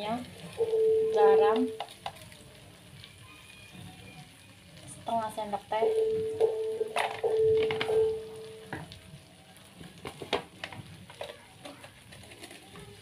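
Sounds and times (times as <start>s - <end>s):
small pops and crackles: 0.0s - 4.0s, 8.6s - 13.0s
paste frying in a wok: 0.0s - 6.4s, 8.3s - 13.0s.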